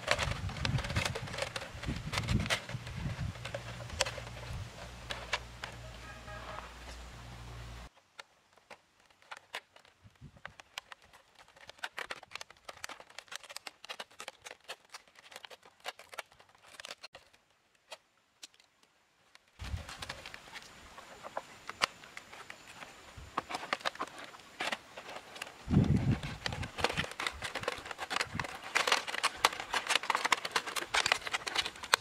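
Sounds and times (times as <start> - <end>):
plastic bottles crinkling: 0.0 - 17.5, 19.6 - 32.0
steady background hiss: 0.9 - 9.4, 17.4 - 26.9.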